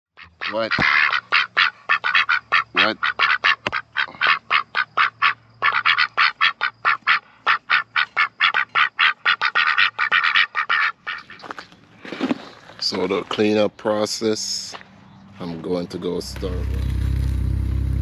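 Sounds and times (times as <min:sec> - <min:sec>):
ducks quacking: 0:00.2 - 0:12.2.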